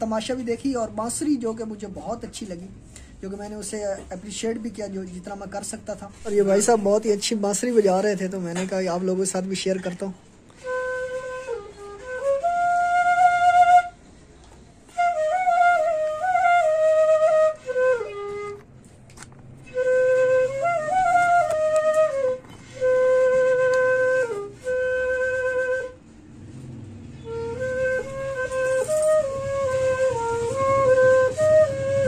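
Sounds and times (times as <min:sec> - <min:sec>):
bamboo flute melody: 0:10.3 - 0:32.0.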